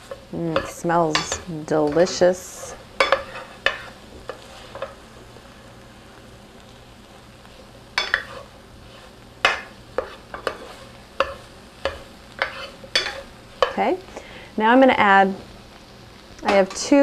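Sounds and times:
spoon scraping a pan: 0:00.0 - 0:05.0, 0:07.5 - 0:13.8
food sizzling: 0:00.0 - 0:17.0.

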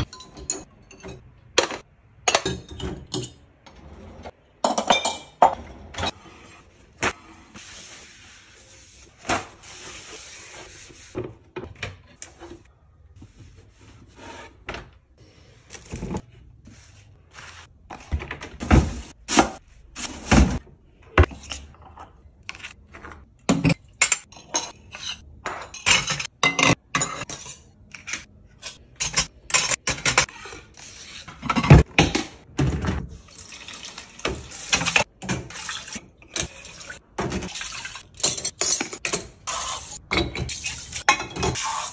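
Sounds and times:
cookware and dishes clattering: 0:00.0 - 0:03.6, 0:04.6 - 0:06.2, 0:23.5 - 0:30.4, 0:34.2 - 0:41.9.

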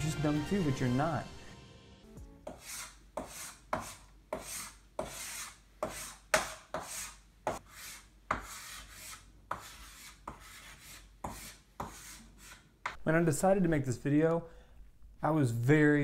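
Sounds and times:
chalk scratching on chalkboard: 0:02.4 - 0:13.0
chalk tapping on board: 0:02.4 - 0:13.0.

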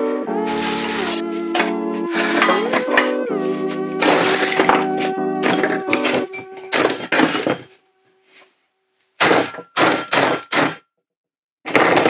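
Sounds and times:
hammer striking metal: 0:04.0 - 0:07.5, 0:09.2 - 0:10.9.

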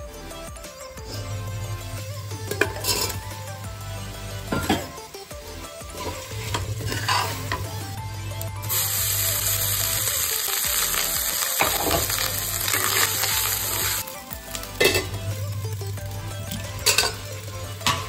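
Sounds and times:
rice sizzling in a hot pan: 0:02.3 - 0:18.0
spatula stirring and scraping: 0:05.9 - 0:07.7.

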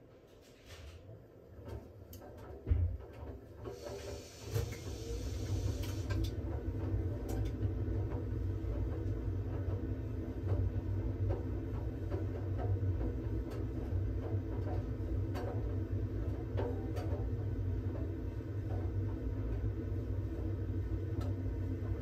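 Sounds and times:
washing machine drum rumbling: 0:01.6 - 0:22.0
hiss: 0:03.7 - 0:06.2.

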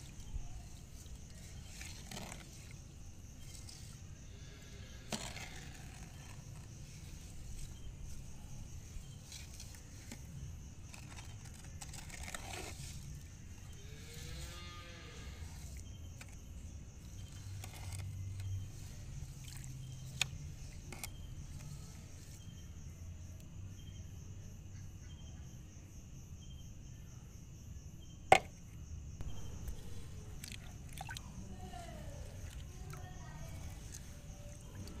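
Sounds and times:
high insect drone: 0:00.1 - 0:11.8, 0:12.6 - 0:35.0
low rumble: 0:29.2 - 0:30.9.

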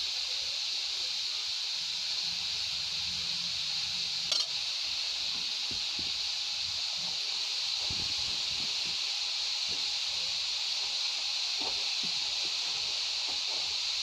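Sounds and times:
carrots sizzling in a pan: 0:00.0 - 0:14.0
steel spatula clinking on pan: 0:04.3 - 0:04.6.

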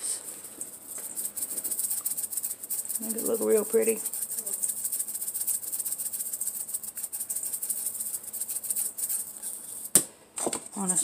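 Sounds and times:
spice shaker rattling: 0:00.0 - 0:10.0.

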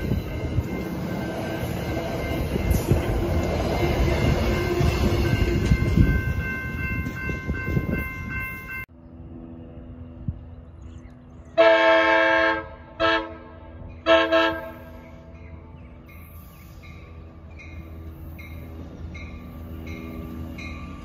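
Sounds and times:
train rumble: 0:00.0 - 0:21.0
train air horn blasts: 0:11.6 - 0:15.1.

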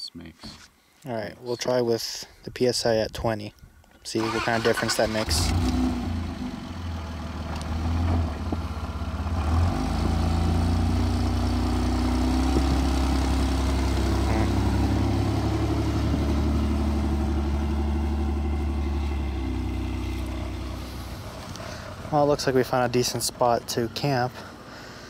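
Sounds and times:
truck engine revving under load: 0:04.2 - 0:23.0.

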